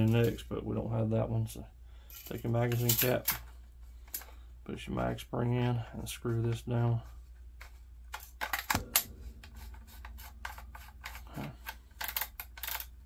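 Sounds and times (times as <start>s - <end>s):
metal clicking and rubbing: 7.6s - 13.0s.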